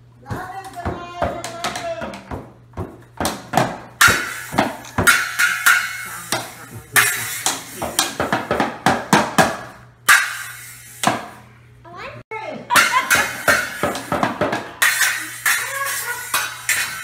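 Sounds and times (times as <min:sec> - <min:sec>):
toy drums banging: 0:00.3 - 0:11.4, 0:12.7 - 0:17.0
toy cymbal crashes: 0:04.0 - 0:08.2, 0:10.0 - 0:11.2, 0:12.8 - 0:14.2, 0:14.8 - 0:17.0.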